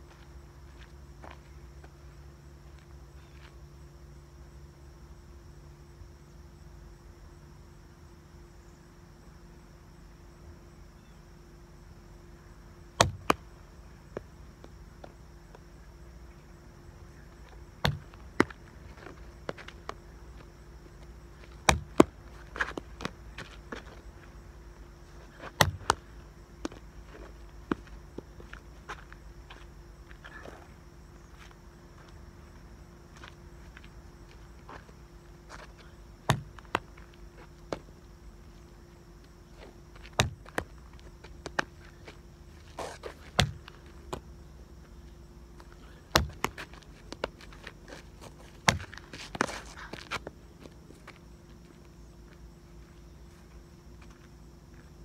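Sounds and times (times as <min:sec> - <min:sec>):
faint steady hum: 0:00.0 - 0:55.0
ball kicked and bouncing on asphalt: 0:12.9 - 0:16.3, 0:17.4 - 0:24.4, 0:25.0 - 0:29.7, 0:33.1 - 0:45.0, 0:45.6 - 0:52.9
footsteps: 0:45.6 - 0:54.9
sharp knocks and thumps: 0:46.1 - 0:47.3.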